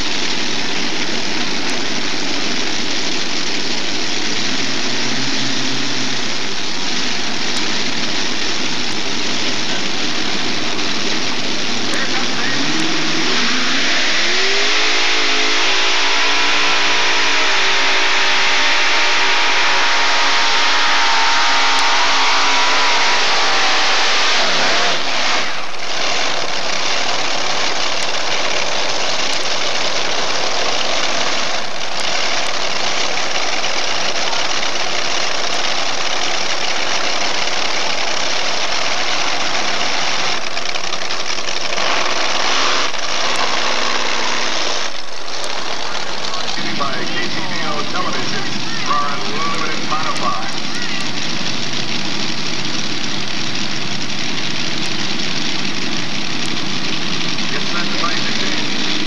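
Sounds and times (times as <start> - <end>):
pulling tractor engines roaring: 0.0 - 59.0.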